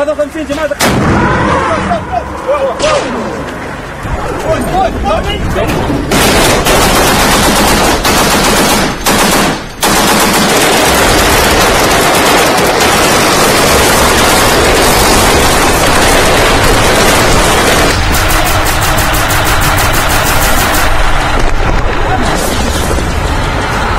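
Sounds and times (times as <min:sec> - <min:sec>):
machine-gun fire: 0:06.0 - 0:21.4.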